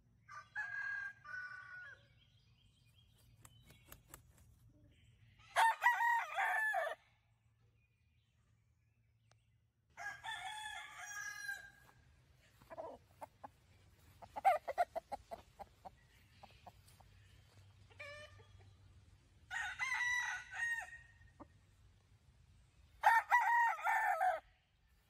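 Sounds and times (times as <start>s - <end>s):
rooster crowing: 0.3s - 2.0s, 5.5s - 7.0s, 10.0s - 11.9s, 19.5s - 21.1s, 23.0s - 24.5s
short clucks: 14.2s - 16.8s.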